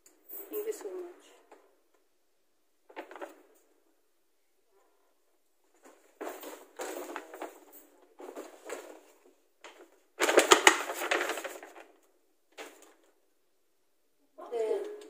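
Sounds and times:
packaging rustling and crinkling: 0:05.8 - 0:13.1.

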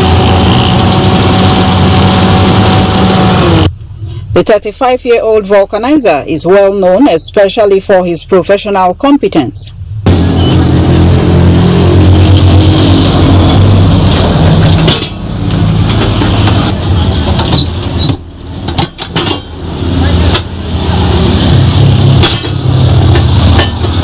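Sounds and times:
engine rumble: 0:00.0 - 0:04.4, 0:09.8 - 0:24.0.

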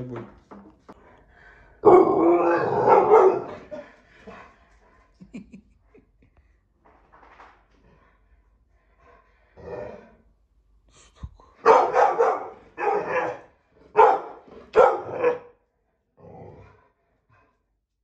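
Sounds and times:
dog barking deeply: 0:01.8 - 0:03.7, 0:11.6 - 0:15.6.

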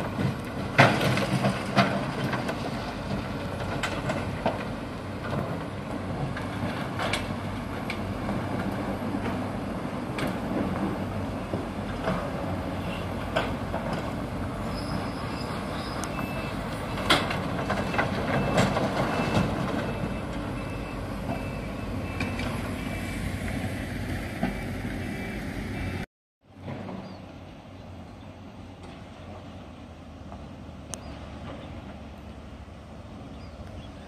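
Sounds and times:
heavy machinery diesel rumble: 0:00.0 - 0:34.0
reversing alarm beeps: 0:15.9 - 0:17.2, 0:17.8 - 0:23.2.

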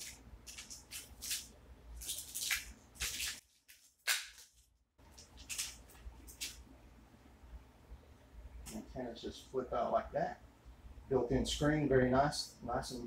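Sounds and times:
wrapping rustling: 0:00.0 - 0:06.6.

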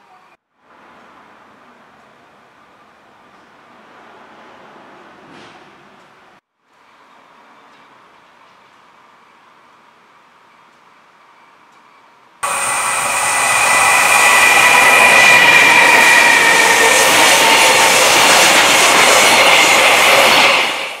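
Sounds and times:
freight train passing: 0:00.8 - 0:11.4, 0:12.2 - 0:21.0
high whine of wheels: 0:12.4 - 0:21.0.

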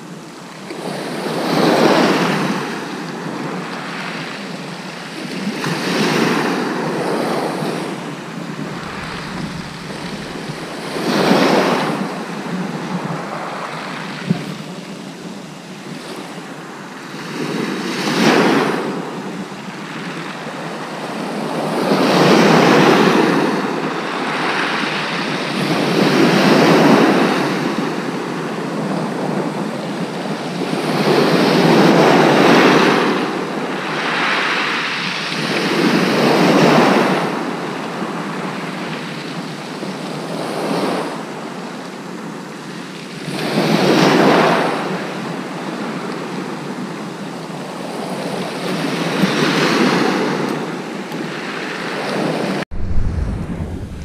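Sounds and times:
waves breaking on shingle beach: 0:05.6 - 0:13.5.

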